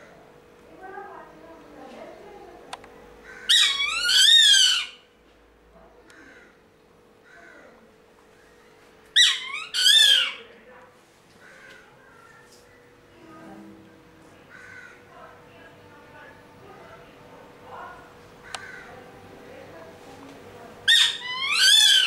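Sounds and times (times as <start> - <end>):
raptor screeching: 20.9 - 22.0.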